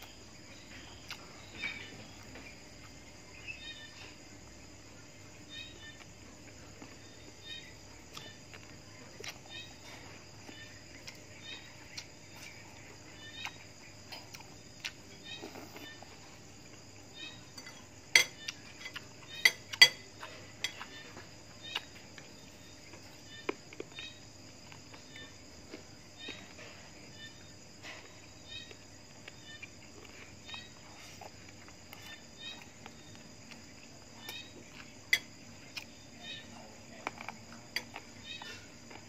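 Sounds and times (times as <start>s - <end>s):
crickets chirping: 0.0s - 39.0s
person chewing: 0.9s - 1.2s, 13.4s - 16.8s
cutlery clinking on dishes: 17.5s - 21.2s.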